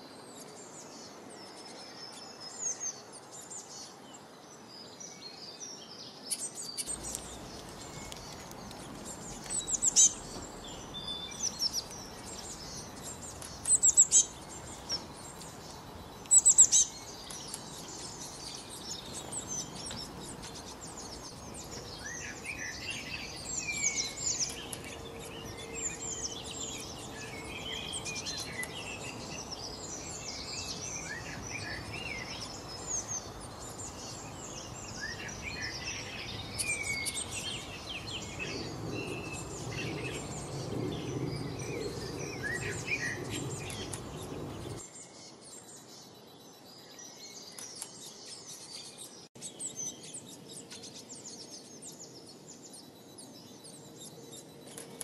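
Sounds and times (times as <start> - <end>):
songbirds chirping and singing: 0.0 - 55.0
sharp bird calls: 6.2 - 44.9.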